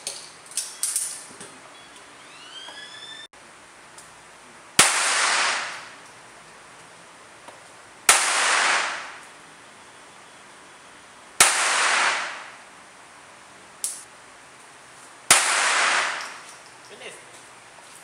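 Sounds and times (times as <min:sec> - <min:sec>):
pistol shots with reverberation: 0:04.8 - 0:05.9, 0:08.1 - 0:09.2, 0:11.4 - 0:12.5, 0:15.3 - 0:16.4.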